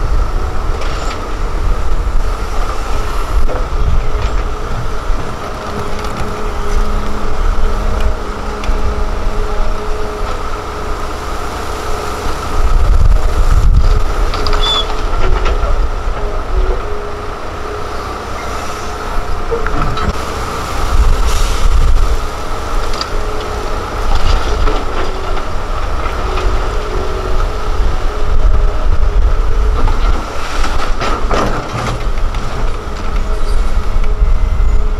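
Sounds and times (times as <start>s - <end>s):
excavator diesel engine and hydraulics: 0.0s - 34.9s.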